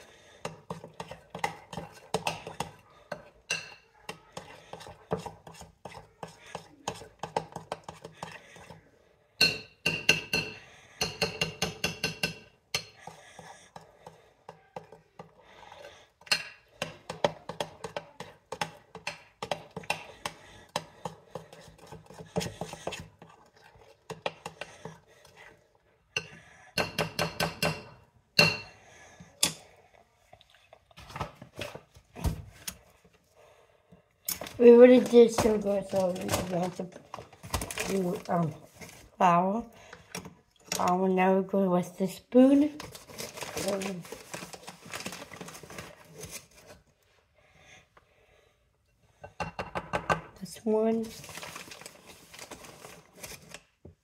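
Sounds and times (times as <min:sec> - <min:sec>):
spoon clinking against mixing bowl: 0:01.0 - 0:03.8, 0:09.4 - 0:13.0.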